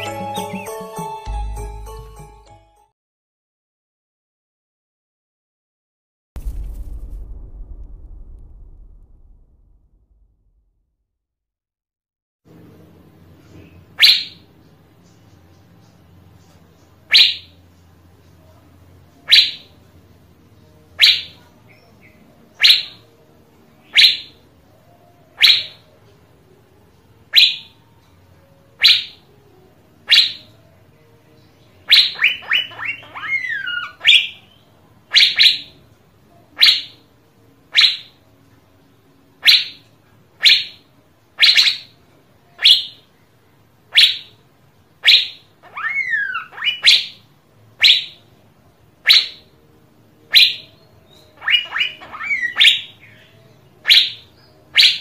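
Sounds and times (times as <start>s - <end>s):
bird whistling: 14.0s - 14.4s, 17.1s - 17.5s, 19.3s - 19.7s, 21.0s - 21.4s, 22.6s - 23.0s, 23.9s - 24.3s, 25.4s - 25.8s, 27.3s - 27.7s, 28.8s - 29.2s, 30.1s - 30.5s, 31.9s - 34.5s, 35.1s - 35.8s, 37.7s - 38.1s, 39.4s - 39.8s, 40.4s - 40.8s, 41.4s - 41.9s, 42.6s - 43.0s, 43.9s - 44.3s, 45.0s - 47.2s, 47.8s - 48.2s, 49.0s - 49.5s, 50.3s - 55.0s.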